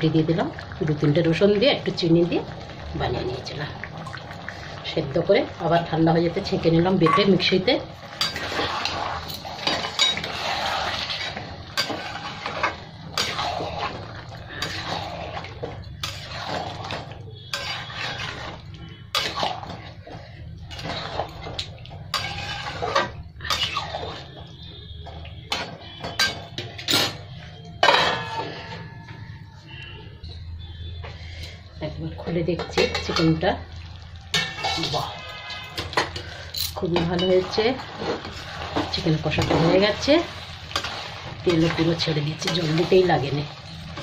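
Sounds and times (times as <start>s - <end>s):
metal spatula scraping a pan: 6.4s - 29.0s, 34.3s - 44.0s.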